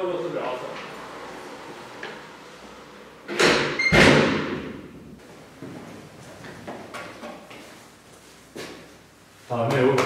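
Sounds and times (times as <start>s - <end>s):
door slamming: 3.3s - 4.9s.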